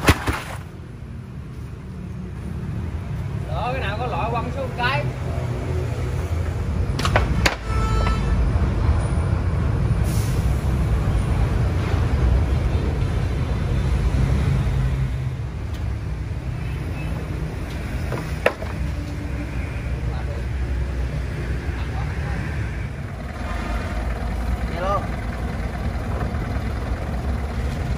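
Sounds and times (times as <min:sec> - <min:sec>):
truck engine idling: 0:15.4 - 0:27.9
sharp knocks: 0:18.0 - 0:18.9.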